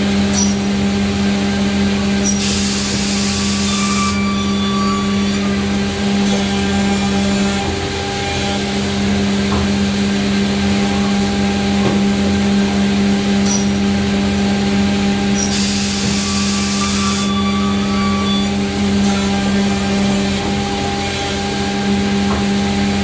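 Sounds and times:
machine motor hum: 4.6 - 23.0.

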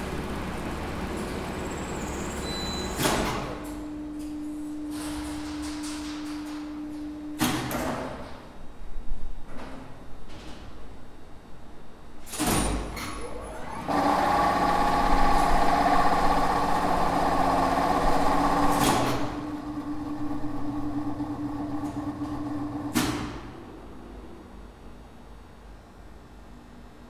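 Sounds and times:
contactor and brake clunk: 0.0 - 8.4, 12.3 - 24.4
elevator motor humming and whining: 0.0 - 9.4, 12.3 - 26.8.

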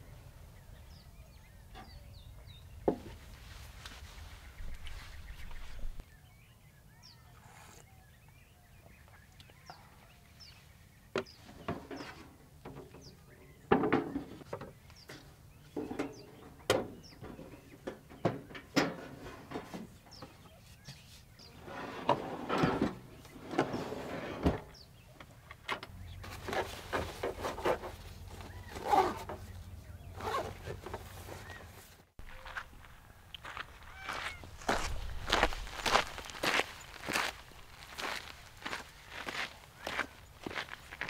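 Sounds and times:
small birds chirping: 0.0 - 18.8, 19.5 - 22.0, 23.0 - 41.0
camp gear knocks and rustles: 25.6 - 31.9.

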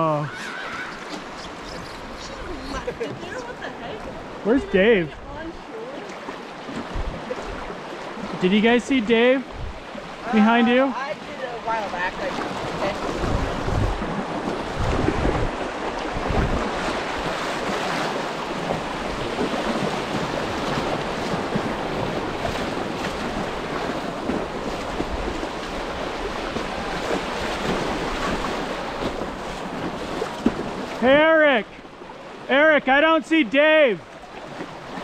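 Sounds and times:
creek water rushing and splashing: 0.0 - 35.0
wind buffeting microphone: 6.7 - 8.4, 9.5 - 10.4, 12.1 - 31.0.

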